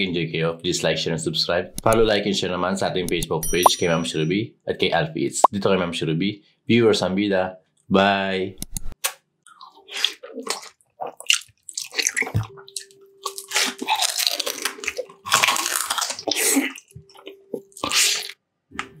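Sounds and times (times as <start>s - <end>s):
chewing and crunching: 9.4s - 18.4s.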